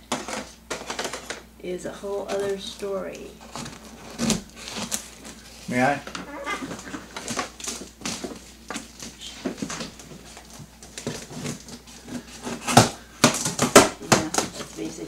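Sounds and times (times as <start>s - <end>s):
tape and cardboard ripping: 3.4s - 14.8s
cardboard scratching and rustling: 3.4s - 15.0s.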